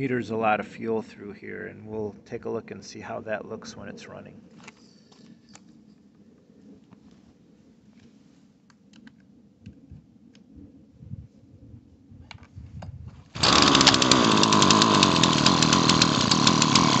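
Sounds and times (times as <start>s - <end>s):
chainsaw engine running: 13.4s - 17.0s.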